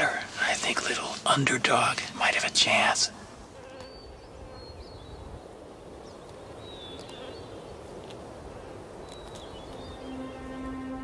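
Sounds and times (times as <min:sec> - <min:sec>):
outdoor background noise: 0:00.0 - 0:11.0
faint high bird chirps: 0:09.0 - 0:10.8.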